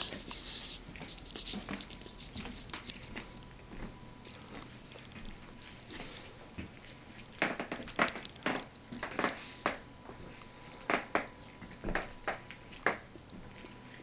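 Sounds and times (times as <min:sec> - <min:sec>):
floorboards creaking underfoot: 0:07.4 - 0:13.1.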